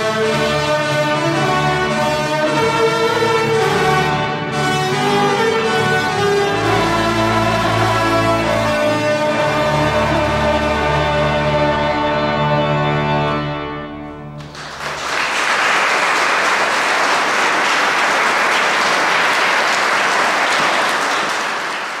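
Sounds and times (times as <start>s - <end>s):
audience applause: 14.4s - 22.0s.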